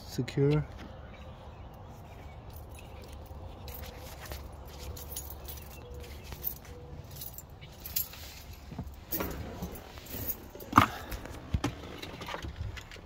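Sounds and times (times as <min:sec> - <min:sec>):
keys jangling: 0:02.5 - 0:10.8.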